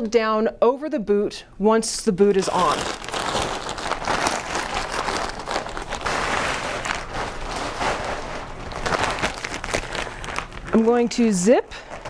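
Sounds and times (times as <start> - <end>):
stiff plastic suit rustling: 2.4 - 12.0.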